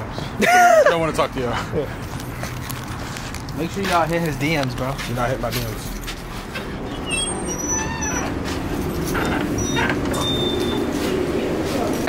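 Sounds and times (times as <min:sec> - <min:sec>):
high-pitched chirps and squeaks: 0:06.8 - 0:10.9.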